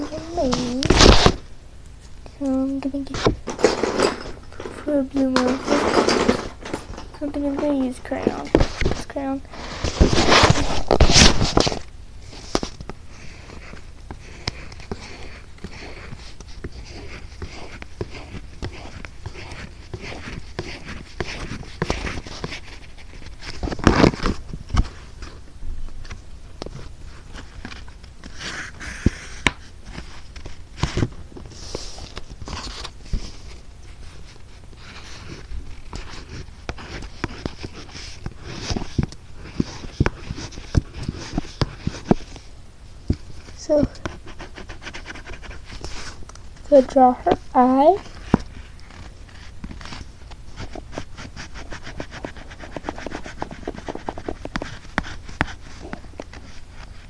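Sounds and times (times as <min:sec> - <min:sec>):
crayon scribbling on paper: 0:00.0 - 0:01.2, 0:04.8 - 0:06.4, 0:13.1 - 0:24.3, 0:34.8 - 0:42.3, 0:43.6 - 0:46.1, 0:50.6 - 0:57.0.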